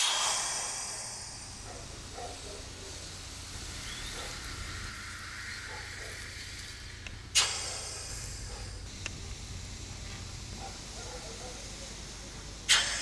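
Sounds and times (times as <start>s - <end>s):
compressed air hissing: 0.0s - 13.0s.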